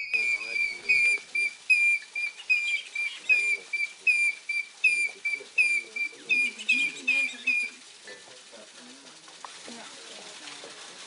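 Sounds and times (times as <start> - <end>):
hornbill piping whistled calls: 0.0 - 8.2.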